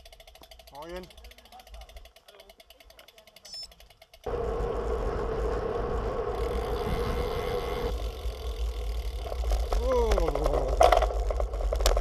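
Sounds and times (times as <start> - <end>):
bike tyres humming on asphalt: 0.0 - 12.0
faint rapid ticking: 0.0 - 12.0
wind on microphone: 4.3 - 8.2.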